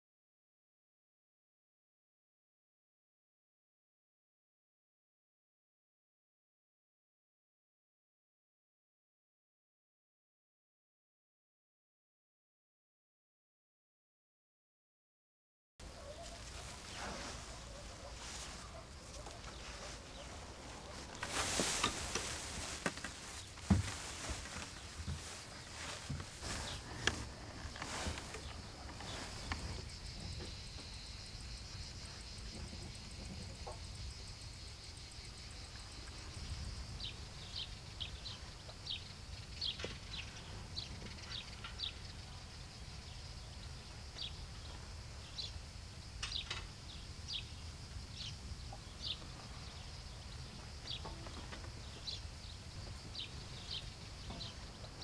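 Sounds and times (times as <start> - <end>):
small birds chirping: 15.8 - 55.0.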